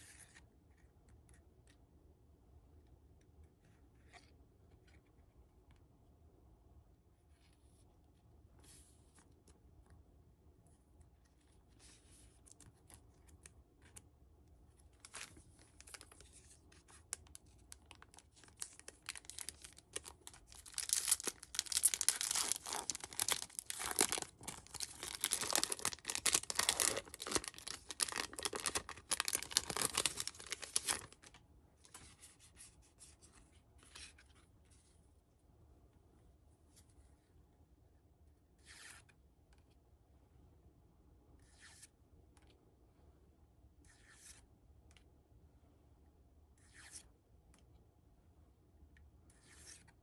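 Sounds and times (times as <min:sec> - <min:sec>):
card handling rustles and clicks: 0:14.9 - 0:32.7
foil wrapper crinkling and tearing: 0:17.2 - 0:31.3.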